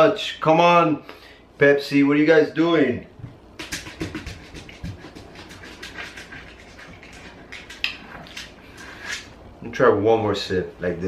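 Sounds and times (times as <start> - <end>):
lip smacking and mouth clicks: 3.6 - 9.3.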